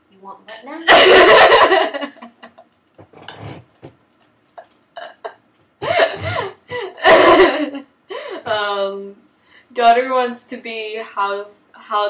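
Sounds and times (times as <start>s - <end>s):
girl laughing hard: 0.9s - 2.6s, 5.0s - 8.4s.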